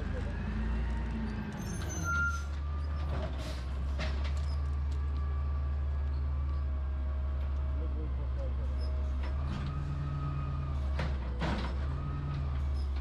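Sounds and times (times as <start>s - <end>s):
high squeal: 1.6s - 2.9s.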